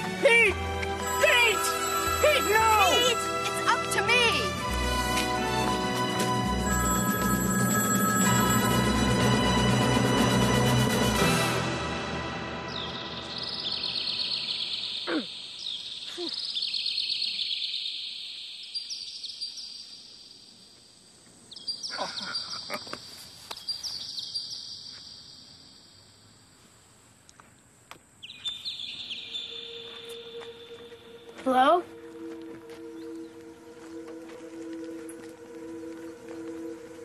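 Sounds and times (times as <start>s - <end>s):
payphone bell ringing: 1.0s - 3.9s, 6.1s - 10.0s.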